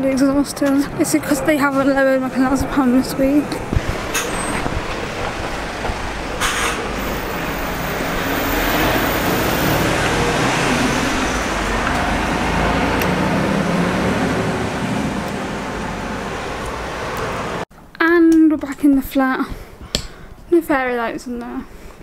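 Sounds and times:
street traffic noise: 0:00.0 - 0:17.7
heavy vehicle engine passing: 0:03.1 - 0:17.7.

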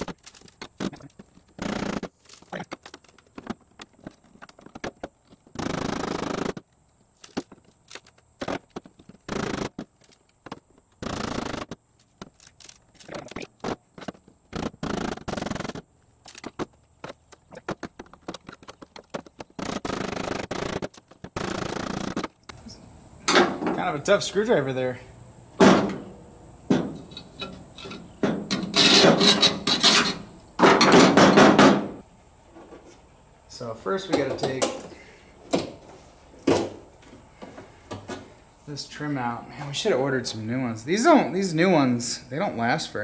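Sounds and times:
hand tool scraping and clicking: 0:27.0 - 0:30.2.

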